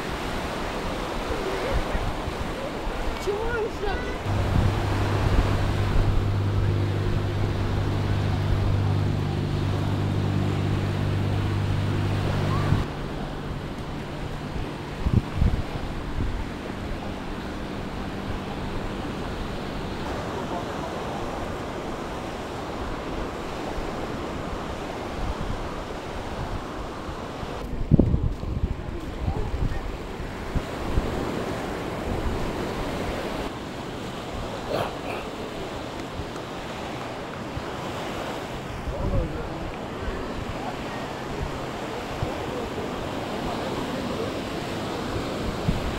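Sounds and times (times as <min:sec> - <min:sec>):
wind on microphone: 0:00.0 - 0:20.2, 0:21.2 - 0:45.9
breaking surf: 0:00.0 - 0:45.9
small waves on sandy shore: 0:00.0 - 0:45.9
low engine hum: 0:04.1 - 0:23.1.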